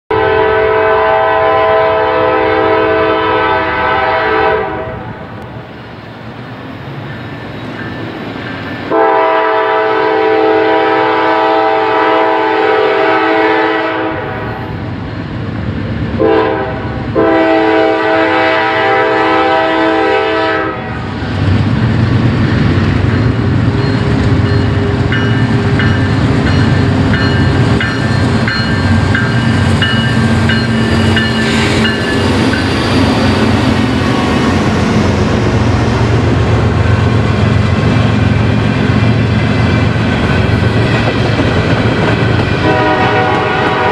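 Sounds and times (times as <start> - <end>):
locomotive air horn: 0.1 - 5.1, 8.9 - 14.6, 16.2 - 21.1, 42.6 - 43.9
diesel locomotive engine rumble: 0.1 - 43.9.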